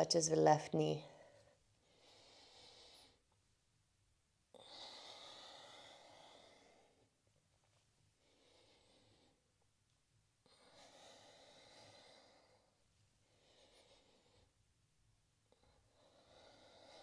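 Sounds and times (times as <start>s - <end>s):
woman breathing faintly: 1.0s - 3.4s, 4.5s - 9.6s, 10.4s - 14.7s, 15.4s - 17.0s.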